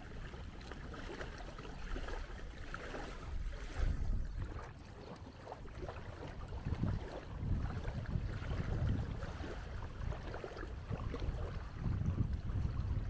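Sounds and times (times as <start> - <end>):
small waves washing on shore: 0.0 - 13.0
wind buffeting microphone: 0.0 - 13.0.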